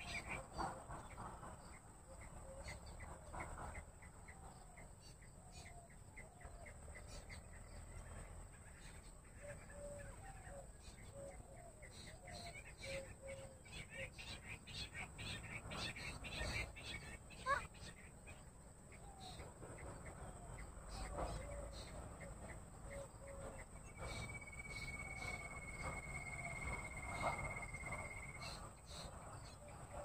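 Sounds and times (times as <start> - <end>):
quail chirping: 8.7 - 30.0.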